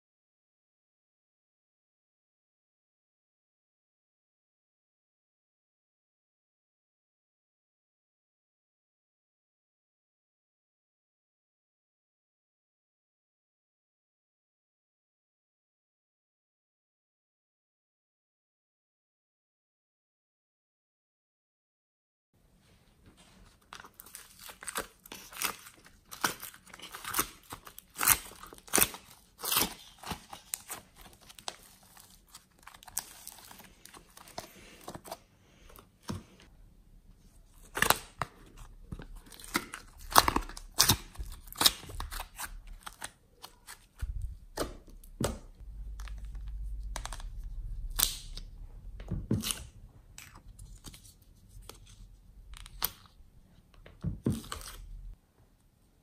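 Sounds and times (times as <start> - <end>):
sticky clay tearing and crackling: 24.1 - 34.4, 37.6 - 45.2, 45.8 - 48.5
low rumble: 44.1 - 50.2.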